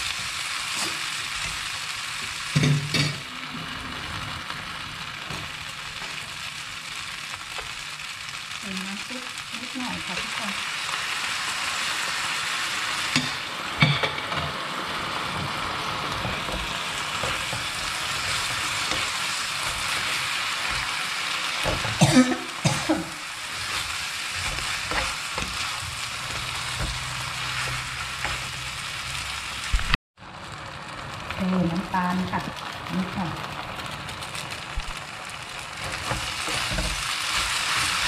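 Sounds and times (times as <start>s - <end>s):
noodles sizzling in a pan: 0.0s - 38.0s
utensil stirring and scraping: 15.4s - 22.1s, 23.4s - 29.2s, 35.8s - 38.0s.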